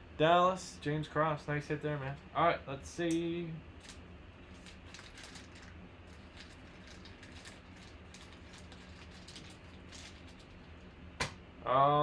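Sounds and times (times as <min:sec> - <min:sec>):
steady low hum: 0:00.0 - 0:12.0
plastic card sleeves crinkling: 0:03.8 - 0:10.8.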